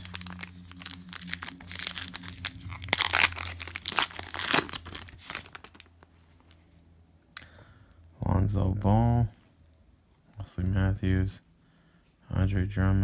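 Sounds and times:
foil wrapper crinkling and tearing: 0.0s - 6.1s.

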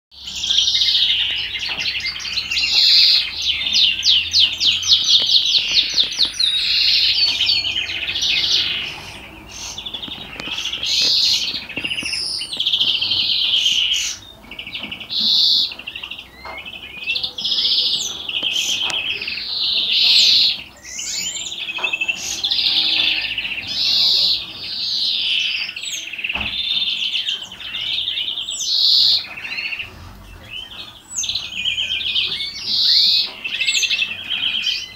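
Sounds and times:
finch singing rapid trills: 0.1s - 34.9s
rising whistled bird notes: 0.4s - 14.2s.

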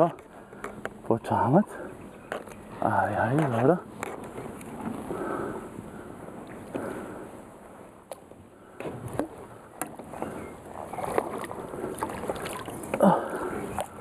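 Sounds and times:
water splashing against boat: 8.7s - 14.0s.

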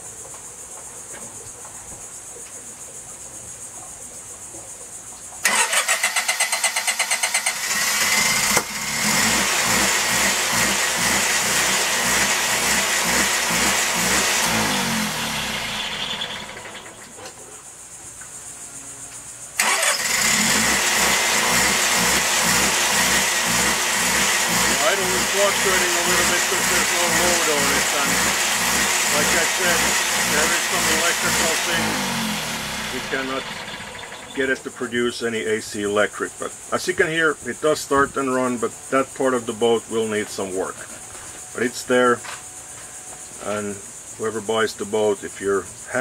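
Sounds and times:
generator engine running: 5.4s - 17.1s, 19.6s - 34.8s
starter motor cranking: 5.4s - 17.2s, 19.6s - 34.6s.

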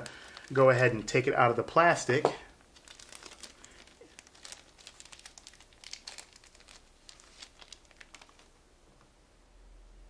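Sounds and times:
plastic wrapping crinkling: 0.0s - 2.0s, 2.6s - 8.6s.

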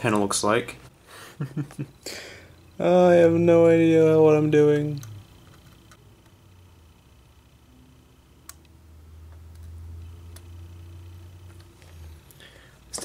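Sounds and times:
low hum: 0.8s - 13.0s.

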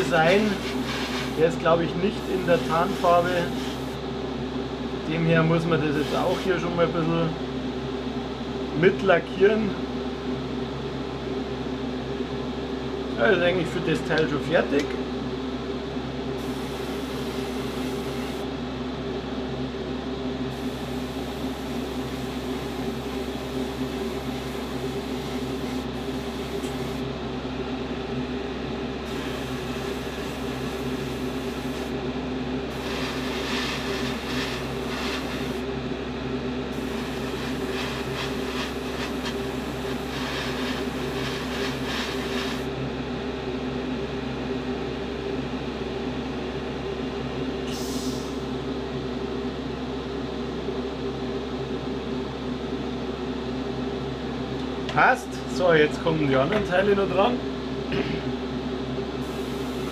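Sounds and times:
extraction fan humming: 0.0s - 44.0s, 54.3s - 59.9s
spray hissing: 0.4s - 1.4s, 2.3s - 3.9s, 29.1s - 31.9s, 32.7s - 35.6s, 36.8s - 42.7s.

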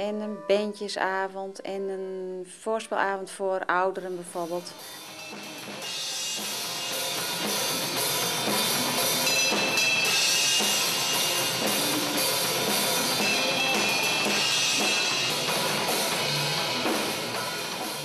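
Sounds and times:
drum kit playing: 4.7s - 18.0s
cymbals ringing: 4.8s - 18.0s.

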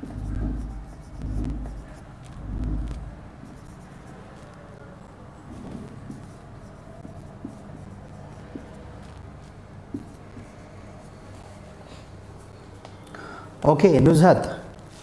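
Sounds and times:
marker scratching on whiteboard: 0.0s - 12.6s
dull low thump: 0.2s - 3.2s.

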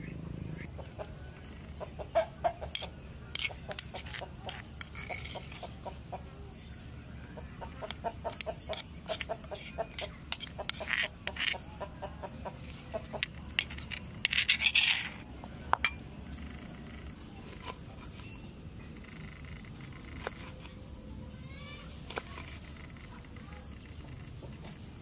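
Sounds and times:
chickens clucking: 0.0s - 13.7s.

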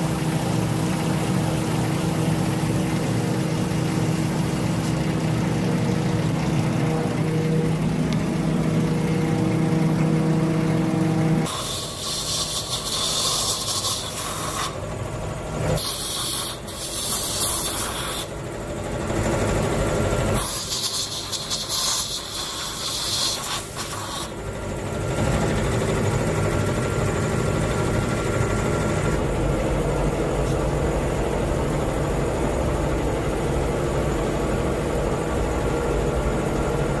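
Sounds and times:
compressed air hissing: 0.0s - 6.5s, 11.4s - 14.9s, 15.7s - 18.4s, 20.3s - 24.4s
low mechanical hum: 0.0s - 37.0s.

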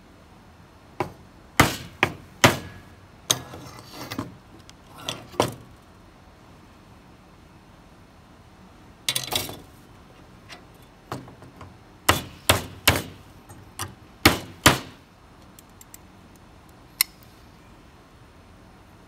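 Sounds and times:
hammer striking sheet metal: 1.6s - 2.9s.

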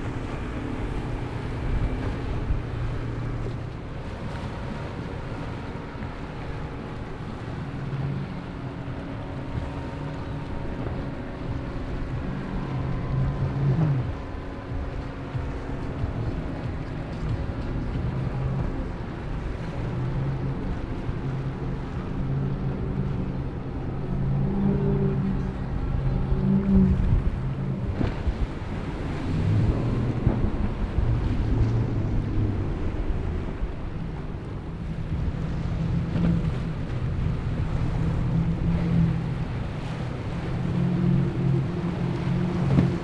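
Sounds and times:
motorboat engines droning: 0.0s - 43.0s
water splashing off hulls: 0.0s - 43.0s
wind on microphone: 0.0s - 43.0s.

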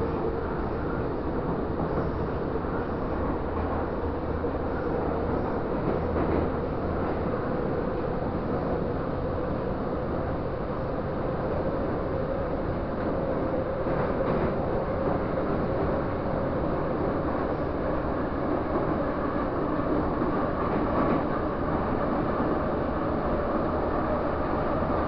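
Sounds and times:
train rumbling through tunnel: 0.0s - 25.0s.

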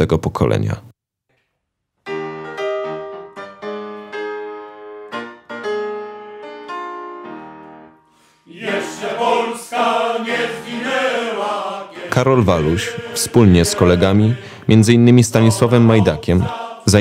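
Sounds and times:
slow piano notes and chords: 2.0s - 8.2s
choir singing: 8.4s - 17.0s.

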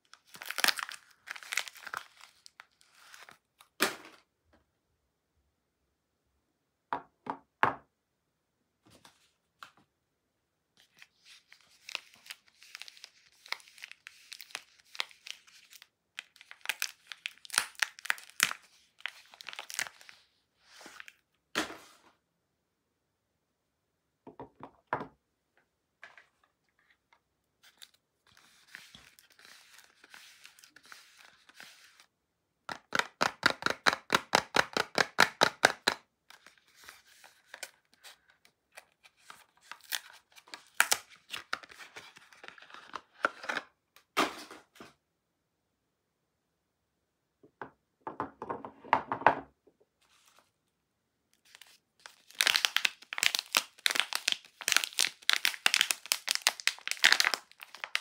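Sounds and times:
paper wrapper crinkling and tearing: 0.0s - 3.8s, 10.8s - 21.2s, 27.6s - 32.1s, 35.8s - 43.6s, 51.4s - 58.0s.

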